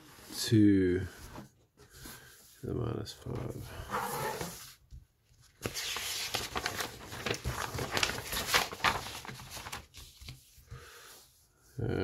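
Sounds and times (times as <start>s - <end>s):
paper rustling on a desk: 3.4s - 10.8s.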